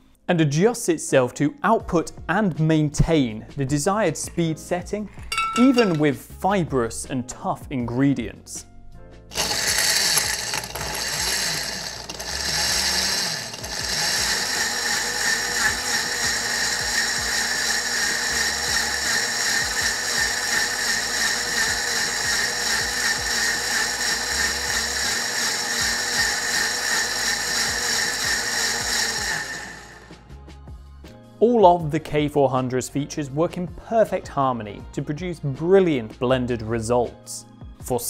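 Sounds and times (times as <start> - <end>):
blender running: 5.6 - 6.0, 9.3 - 30.3.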